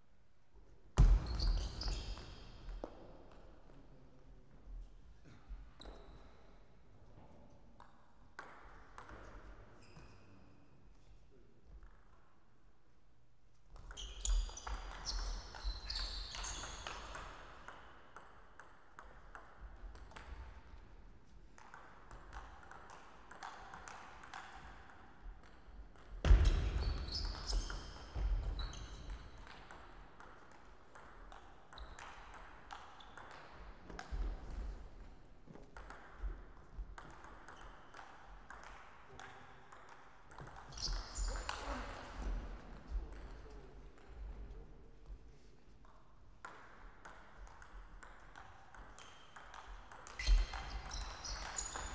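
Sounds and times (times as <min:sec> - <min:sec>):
shoes squeaking on floor: 0:01.2 - 0:02.5, 0:13.9 - 0:17.0, 0:40.7 - 0:41.9, 0:50.1 - 0:51.9.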